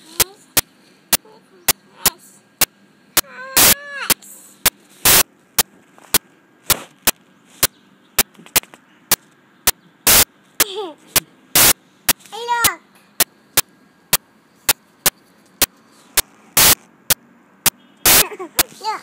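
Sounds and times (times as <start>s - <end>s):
steady sharp clicks: 0.2s - 18.7s
toddler high-pitched vocal sounds: 3.2s - 4.4s.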